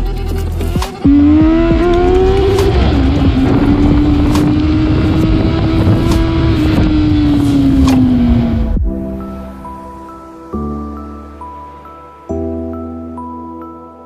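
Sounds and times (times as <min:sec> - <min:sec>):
motorcycle engine revving high: 0:00.9 - 0:08.8.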